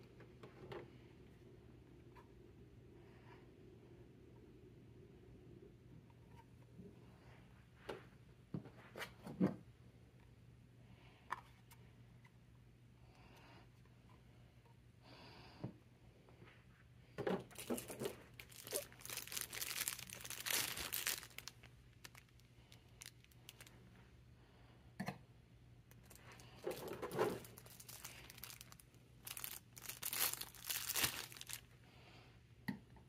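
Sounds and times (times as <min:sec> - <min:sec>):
plastic packaging crinkling and tearing: 0:17.5 - 0:23.7, 0:25.9 - 0:31.7.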